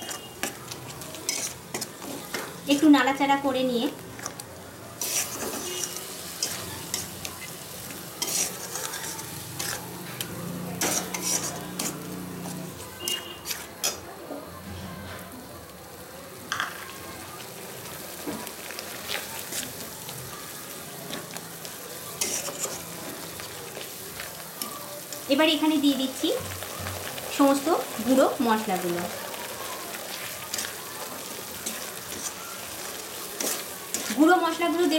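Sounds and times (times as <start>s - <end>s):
metal spatula scraping pan: 0.0s - 2.9s, 5.0s - 14.0s, 22.2s - 23.2s, 30.5s - 34.9s
masala sizzling: 0.0s - 34.9s.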